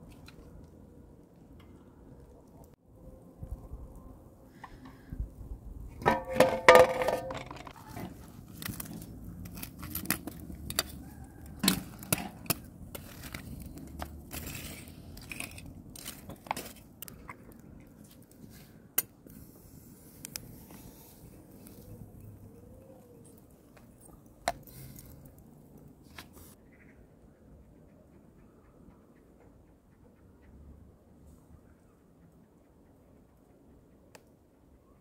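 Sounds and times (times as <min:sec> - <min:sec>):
metal poker raking embers: 0:06.0 - 0:22.3, 0:23.2 - 0:26.6.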